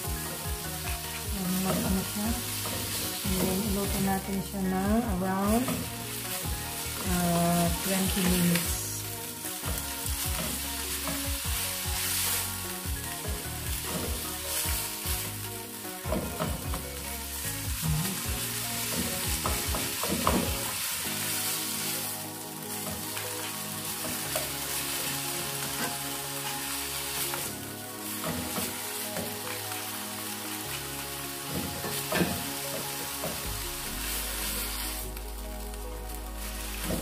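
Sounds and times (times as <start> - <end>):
meat sizzling in a wok: 0.0 - 37.0
turner scraping a wok: 0.2 - 4.8, 30.8 - 37.0.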